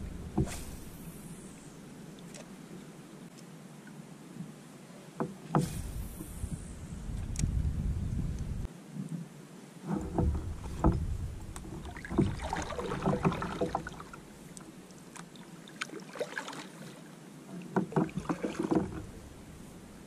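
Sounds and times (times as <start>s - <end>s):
low wind rumble: 0.0s - 2.9s, 5.6s - 8.7s, 9.8s - 14.9s, 18.1s - 20.0s
paddle splashing in water: 9.8s - 20.0s
paddle knocks and clatter: 9.9s - 14.3s, 17.5s - 19.3s.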